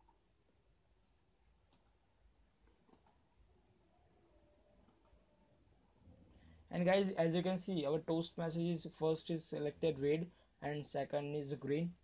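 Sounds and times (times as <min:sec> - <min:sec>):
faint clicks: 0:04.8 - 0:05.2.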